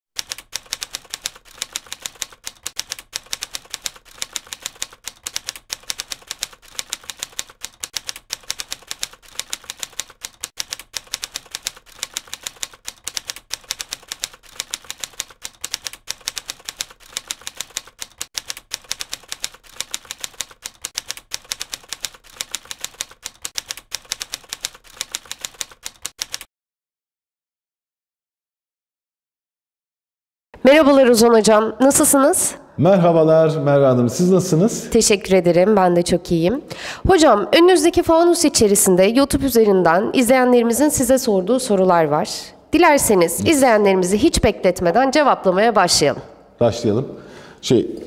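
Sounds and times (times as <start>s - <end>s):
keyboard typing clicks: 0.2s - 26.5s.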